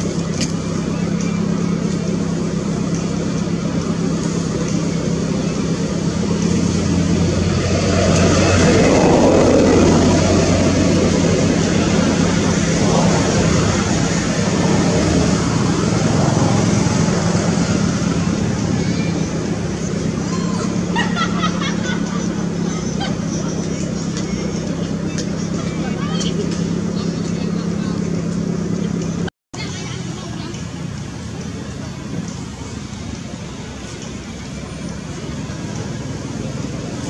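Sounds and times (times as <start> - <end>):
vehicle engine humming: 0.0 - 37.0.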